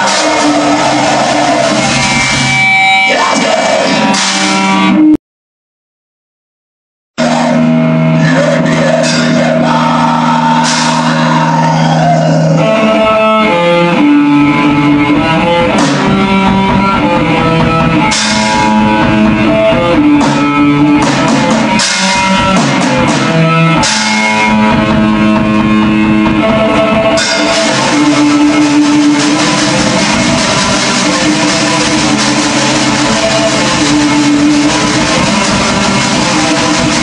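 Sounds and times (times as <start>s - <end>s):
drum kit: 0.0s - 5.2s, 7.2s - 37.0s
electric guitar riff: 0.0s - 5.2s, 7.2s - 37.0s
cymbal crashes: 10.5s - 11.4s, 18.0s - 19.0s, 27.2s - 37.0s.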